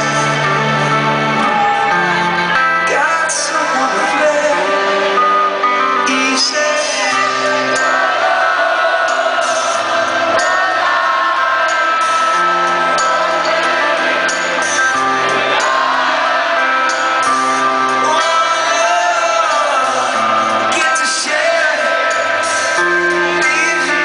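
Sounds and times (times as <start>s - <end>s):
man singing: 0.0s - 0.9s, 2.8s - 8.2s, 17.8s - 24.0s
live rock band playing: 0.0s - 24.0s
sustained bass notes: 0.0s - 24.0s.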